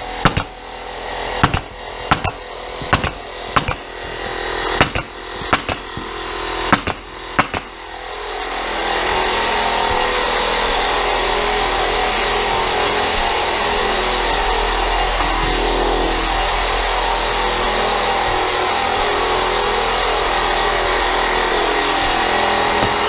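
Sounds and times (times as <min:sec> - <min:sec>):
air compressor motor running: 0:00.0 - 0:23.0
nail gun firing: 0:00.2 - 0:00.7, 0:01.4 - 0:08.1, 0:21.9 - 0:23.0.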